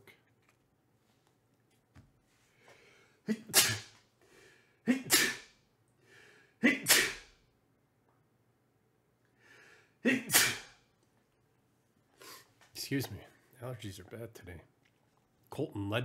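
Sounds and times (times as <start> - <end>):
man sneezing: 3.2 - 4.0, 4.8 - 5.6, 6.6 - 7.4, 10.0 - 10.8
short in-breath: 9.4 - 10.7.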